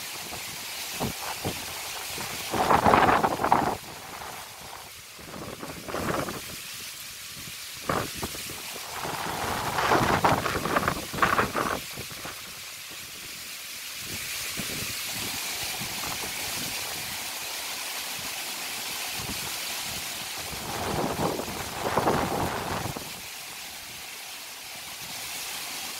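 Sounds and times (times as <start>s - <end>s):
strong wind through trees: 0.0s - 25.9s
wind buffeting microphone: 1.0s - 6.6s, 7.8s - 12.4s, 20.5s - 23.1s.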